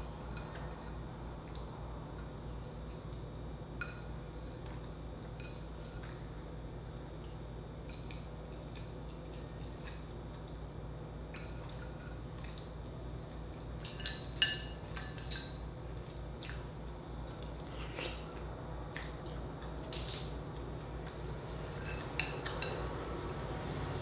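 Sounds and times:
wet eating mouth sounds: 15.2s - 23.3s.

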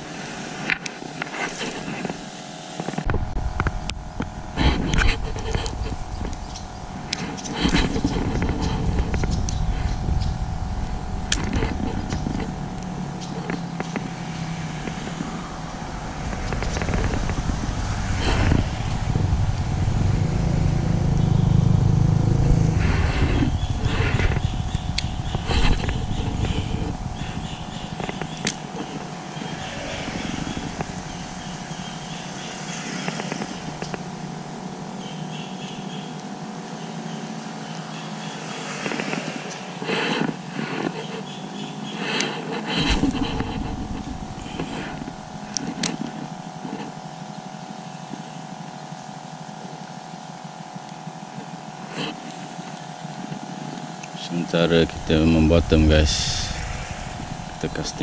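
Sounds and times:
background traffic hum: 0.0s - 58.0s
vehicle passing overhead rumble: 11.9s - 35.0s, 54.5s - 58.0s.

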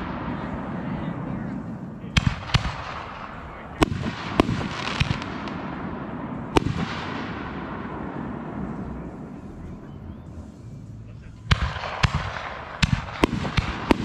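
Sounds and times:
fireworks bangs: 0.0s - 14.0s.

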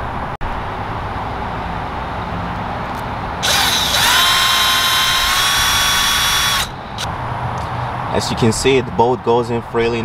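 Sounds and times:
power drill whining: 3.4s - 7.1s.

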